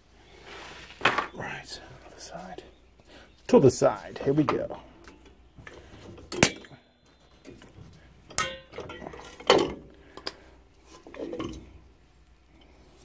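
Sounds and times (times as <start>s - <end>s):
metal clicks and clinks: 8.3s - 10.4s.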